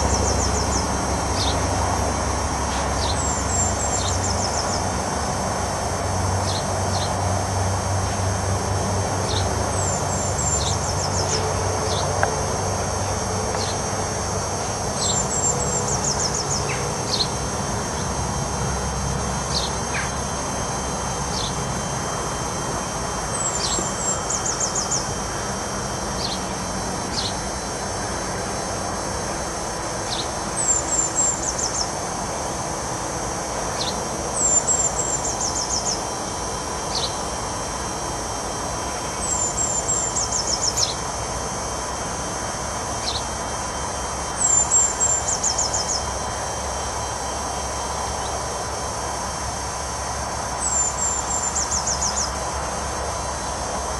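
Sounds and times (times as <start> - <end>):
other birds chirping: 0.0 - 1.6, 19.5 - 20.3, 26.2 - 26.5, 27.1 - 27.5
songbird singing: 0.0 - 5.0, 6.1 - 7.4, 9.2 - 22.4, 23.3 - 25.5, 26.1 - 27.6, 30.0 - 31.9, 33.7 - 36.1, 36.9 - 37.2, 38.8 - 41.1, 43.0 - 43.4, 44.3 - 46.4, 48.0 - 48.5, 50.5 - 53.6
high insect-like whine: 0.0 - 53.9.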